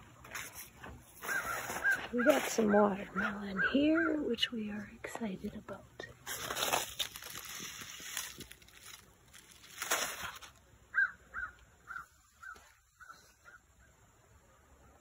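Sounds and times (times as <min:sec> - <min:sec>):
bird calling: 0:01.2 - 0:04.6, 0:10.9 - 0:15.0.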